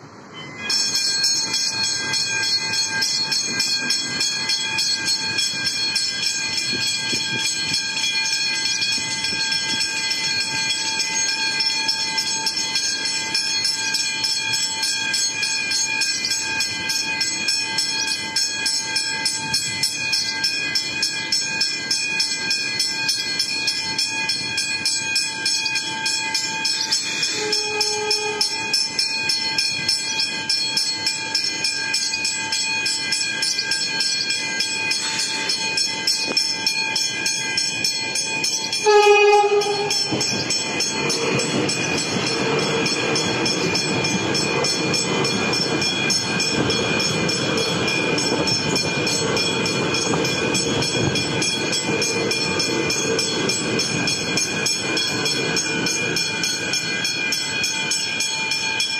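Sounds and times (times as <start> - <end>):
level-crossing warning bells: 0.0 - 58.9
train wheels and motors rumbling: 0.0 - 58.9
train horn blast: 27.4 - 28.5, 38.8 - 40.2.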